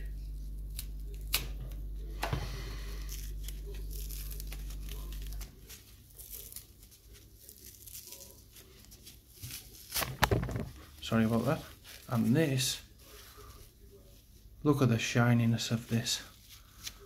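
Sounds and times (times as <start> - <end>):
low steady hum: 0.0 - 17.0
packaging tearing and crinkling: 2.9 - 12.6.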